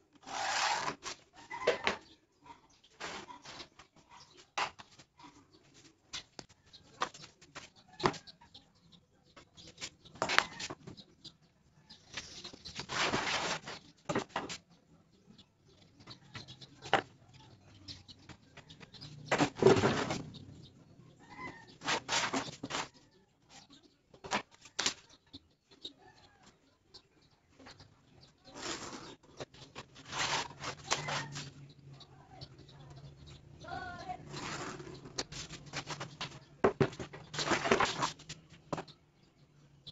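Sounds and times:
pen scraping along straightedge: 0:00.2 - 0:01.2, 0:21.8 - 0:22.9, 0:28.5 - 0:29.2, 0:29.9 - 0:31.5, 0:34.3 - 0:36.1.

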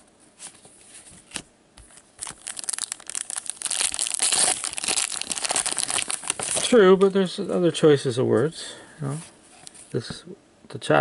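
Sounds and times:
foil wrapper tearing and crinkling: 0:02.2 - 0:06.8.

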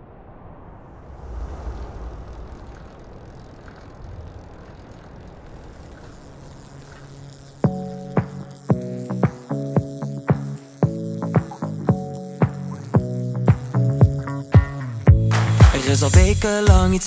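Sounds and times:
road traffic rumble and hiss: 0:01.1 - 0:10.8.

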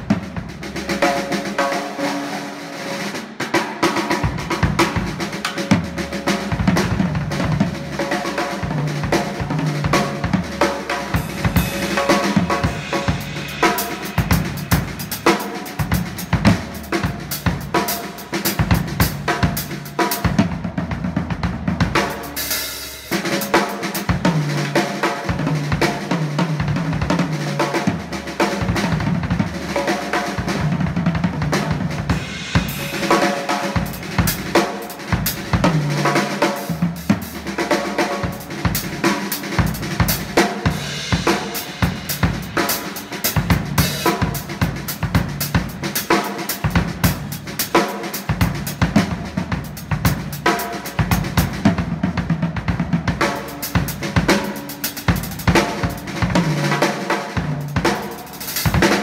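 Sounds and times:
bass drum: 0:00.0 - 0:01.5, 0:04.3 - 0:22.4, 0:24.1 - 0:47.8, 0:48.4 - 0:56.7
snare drum: 0:00.0 - 0:20.5, 0:29.7 - 0:59.0
hi-hat and cymbals: 0:11.0 - 0:20.2, 0:32.1 - 0:35.6, 0:37.8 - 0:48.8, 0:53.4 - 0:56.2, 0:57.6 - 0:59.0.

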